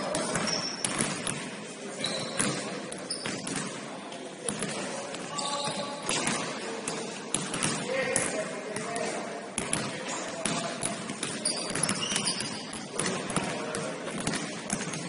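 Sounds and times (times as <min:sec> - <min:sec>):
voices in background: 0:00.0 - 0:15.0
basketball bouncing on gym floor: 0:00.1 - 0:01.4, 0:02.3 - 0:03.8, 0:05.6 - 0:15.0.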